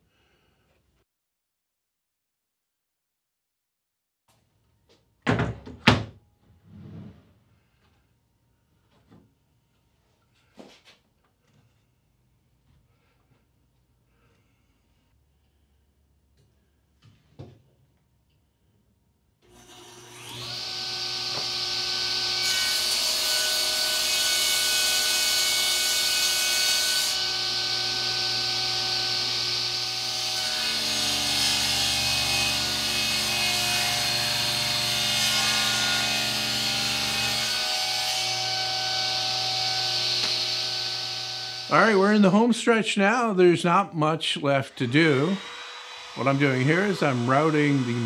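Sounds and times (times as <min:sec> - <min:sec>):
table saw whining: 0:19.4 - 0:42.4, 0:44.3 - 0:48.0
saw blade ripping boards: 0:19.5 - 0:41.7.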